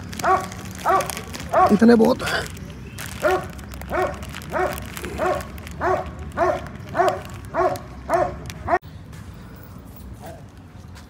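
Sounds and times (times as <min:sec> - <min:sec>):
dog barking: 0:00.2 - 0:01.8, 0:03.2 - 0:08.8.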